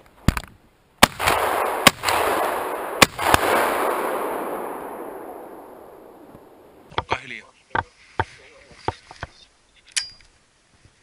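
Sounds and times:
shotgun shots with echo: 1.0 - 6.9.

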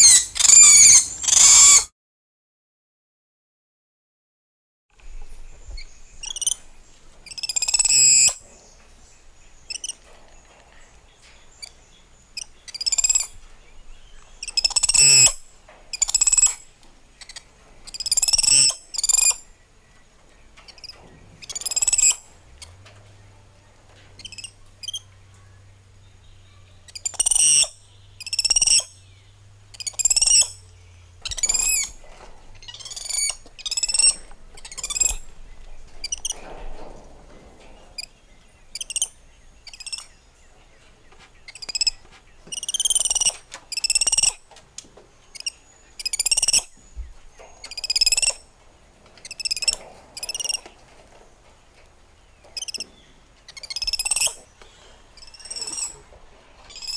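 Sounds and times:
monkeys squealing calls: 0.0 - 1.9, 14.5 - 15.4, 27.0 - 28.9, 29.8 - 30.6, 31.3 - 32.0, 32.7 - 35.2, 42.5 - 44.4, 55.2 - 56.0.

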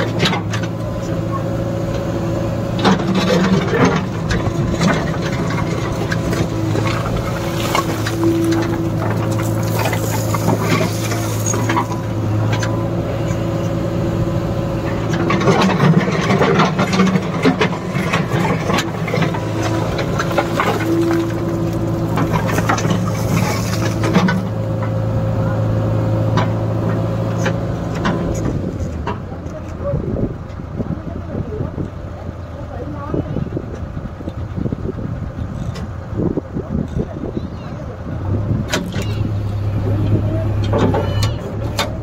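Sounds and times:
diesel engine running under load: 0.0 - 42.0
rubble scraping and knocking: 2.9 - 12.1, 15.2 - 24.6.

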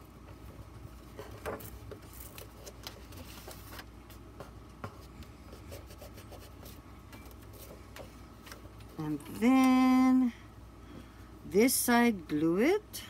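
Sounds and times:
paper rustling: 1.2 - 5.1.

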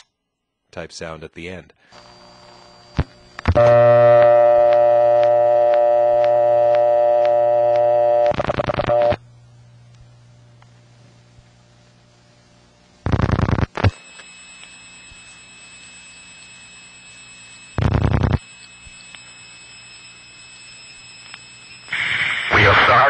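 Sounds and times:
telephone line hiss: 1.8 - 9.2, 13.0 - 23.0
buzzing pulse bursts: 1.9 - 9.2, 13.0 - 23.0
faint high-pitched tones: 13.9 - 23.0.

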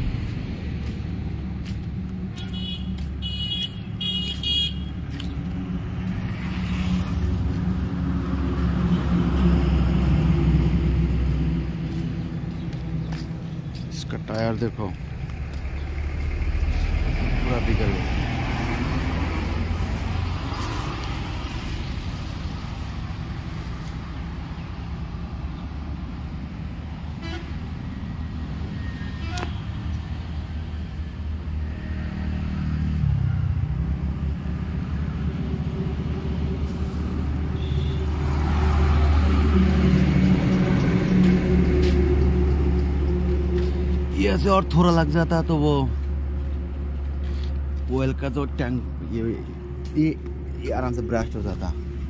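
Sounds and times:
loud vehicle passing close: 0.0 - 2.1, 5.4 - 13.4, 15.0 - 23.5, 31.4 - 47.0
road traffic rumbling past: 0.0 - 52.0.

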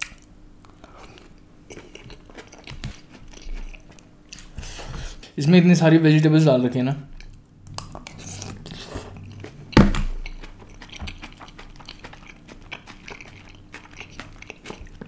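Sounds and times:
chewing noodles: 0.0 - 4.9, 7.2 - 15.0
loud thump: 9.6 - 10.2.

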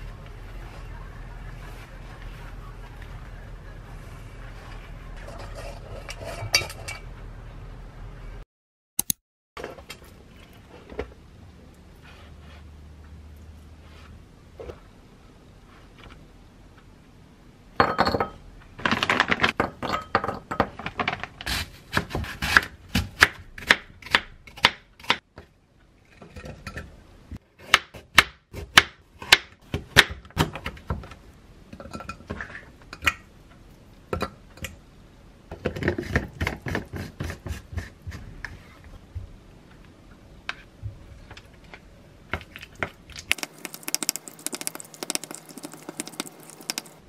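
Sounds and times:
utensils clicking on bowls and board: 43.2 - 47.0.

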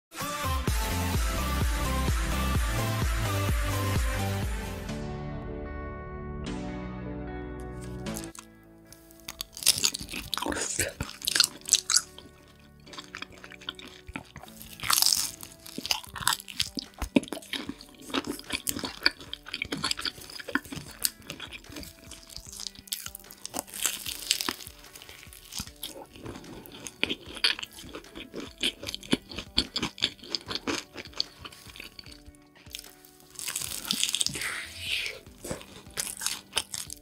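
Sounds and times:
quiet background music: 6.5 - 37.0
crunching of fried pastry: 7.8 - 37.0
wet chewing: 7.8 - 37.0.

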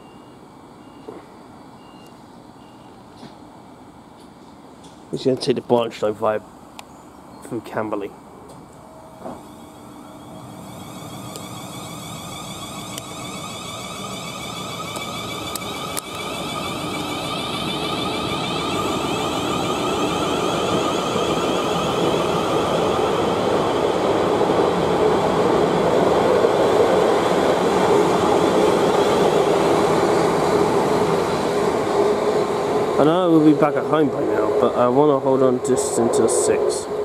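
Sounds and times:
electric train motor whine: 8.6 - 37.0
wheels rumbling on rails: 8.7 - 37.0.

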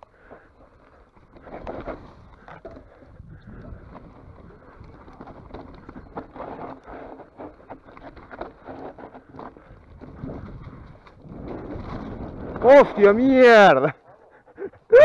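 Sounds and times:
bike rattling over bumps: 0.0 - 14.5
bike tyre rumble on dirt: 0.0 - 15.0.

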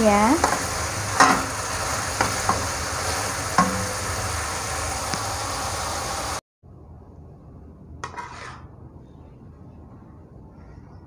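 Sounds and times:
vegetables sizzling in a wok: 0.0 - 6.4.

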